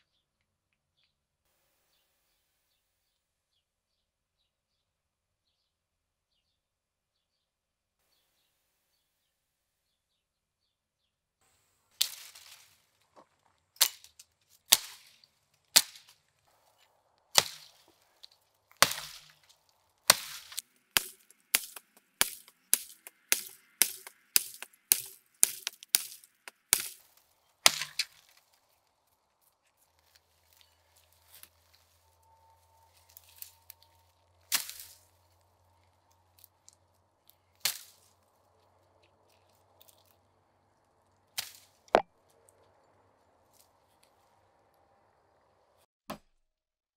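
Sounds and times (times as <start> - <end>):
blade cutting through brush: 11.9 - 28.9, 29.8 - 38.2
blade chopping into branch: 12.0 - 12.8, 13.8 - 28.6, 34.4 - 35.1, 37.6 - 38.1.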